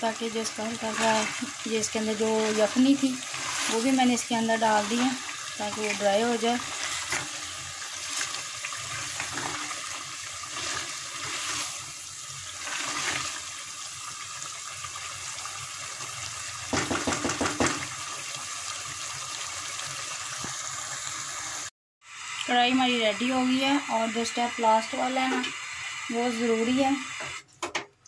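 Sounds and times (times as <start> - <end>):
stew bubbling and sizzling: 0.0 - 27.5
spatula knocking and scraping pot: 16.7 - 17.9.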